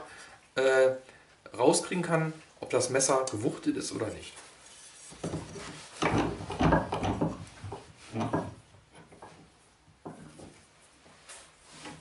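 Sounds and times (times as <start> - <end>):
metal clunks and scrapes: 4.7 - 9.5.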